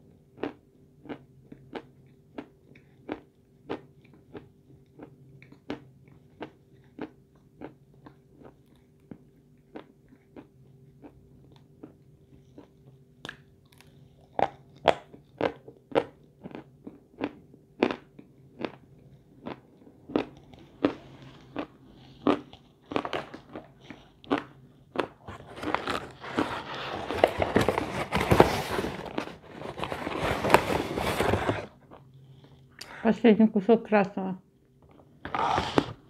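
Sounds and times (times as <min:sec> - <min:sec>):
paper bag crinkling: 0:25.3 - 0:31.7.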